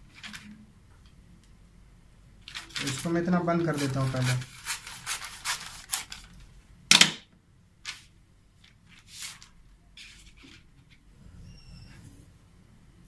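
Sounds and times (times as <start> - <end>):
paper rustling: 0.0 - 0.6, 2.4 - 6.5, 7.8 - 11.0
scissors snipping paper: 2.6 - 6.3.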